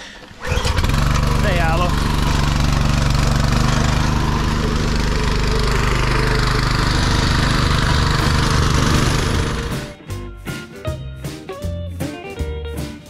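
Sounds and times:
plate compactor engine running: 0.2 - 10.0.

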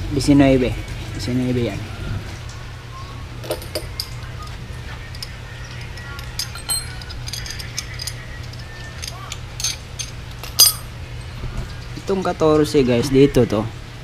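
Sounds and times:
steady low hum: 0.0 - 14.0
metal wrenches clinking: 3.4 - 4.2, 5.1 - 11.9.

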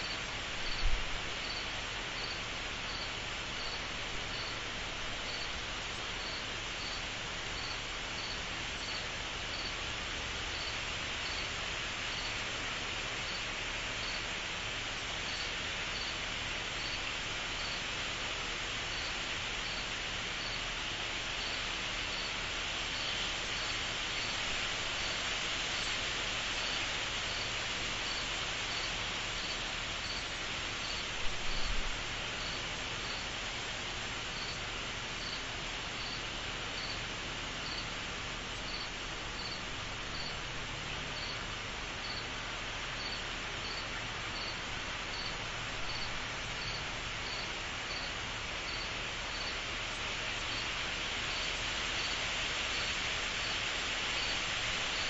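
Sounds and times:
cricket chirping: 0.0 - 4.6, 6.2 - 9.8, 10.5 - 11.5, 12.1 - 12.4, 14.0 - 14.2, 15.3 - 16.2, 16.8 - 17.8, 18.9 - 20.6, 21.4 - 22.3, 26.6 - 31.8, 32.4 - 33.3, 34.4 - 34.6, 35.2 - 35.4, 36.0 - 36.2, 36.8 - 37.0, 37.6 - 37.9, 38.7 - 40.4, 41.2 - 41.4, 42.0 - 42.3, 43.0 - 49.6.

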